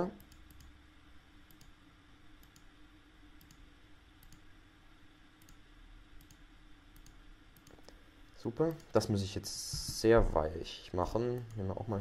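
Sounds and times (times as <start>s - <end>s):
faint steady hum: 0.0s - 12.0s
computer mouse clicks: 0.2s - 0.8s, 1.5s - 1.8s, 2.4s - 2.7s, 3.4s - 3.6s, 4.2s - 4.5s, 5.4s - 5.6s, 6.2s - 8.0s.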